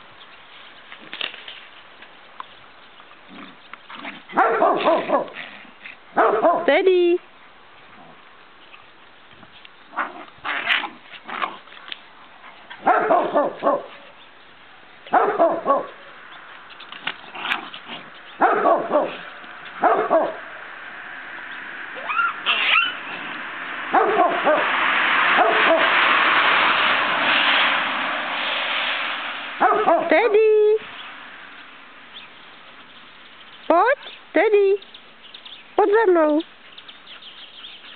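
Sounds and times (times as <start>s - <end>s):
dog barking: 4.3s - 5.4s, 6.2s - 6.7s, 12.8s - 14.1s, 15.1s - 16.1s, 18.4s - 20.5s, 23.9s - 24.7s, 25.4s - 25.9s, 29.6s - 30.1s
steady rushing noise: 16.2s - 32.1s.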